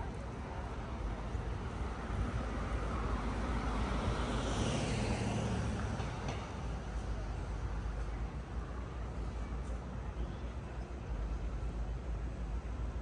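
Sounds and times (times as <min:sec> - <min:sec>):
vehicle driving past: 0:03.6 - 0:06.0.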